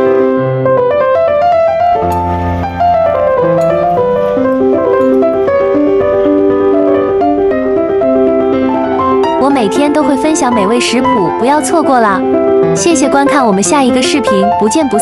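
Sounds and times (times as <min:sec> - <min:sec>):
light piano melody: 0:00.0 - 0:15.0.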